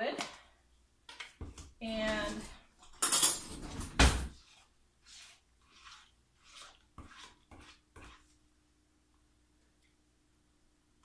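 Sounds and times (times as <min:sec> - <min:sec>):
cutlery clattering in drawer: 0:03.0 - 0:04.3
spoon scraping yogurt tub: 0:03.4 - 0:08.4.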